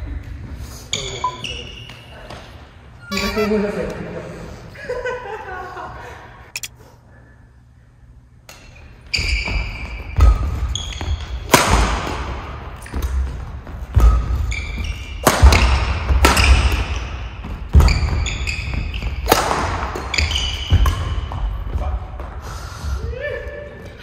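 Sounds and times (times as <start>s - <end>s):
court shoes squeaking: 0.0s - 4.1s, 8.5s - 11.5s, 12.4s - 22.4s
racket striking shuttlecock: 11.4s - 13.2s, 13.9s - 18.3s, 19.2s - 21.4s.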